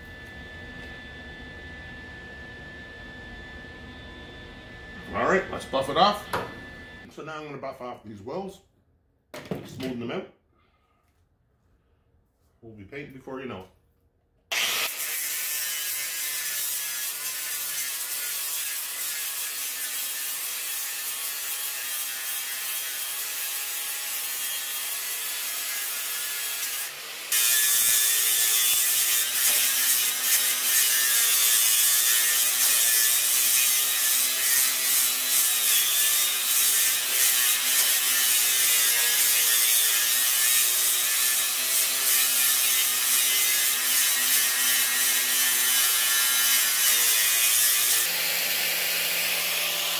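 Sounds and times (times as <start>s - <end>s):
angle grinder grinding metal: 14.5s - 49.9s.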